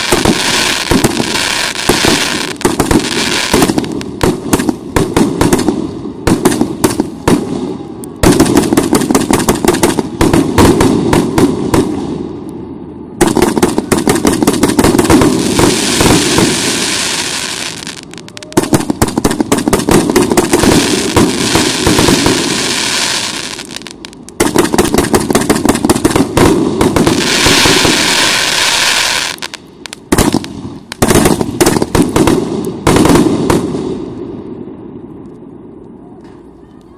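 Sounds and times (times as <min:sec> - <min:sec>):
hissing crackle of firework stars: 0:00.0 - 0:12.6, 0:13.2 - 0:34.6.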